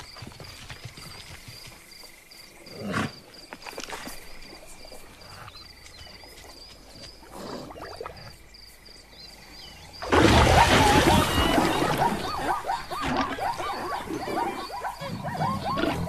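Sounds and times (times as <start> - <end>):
cartoon splash and roar: 10.0 - 13.2.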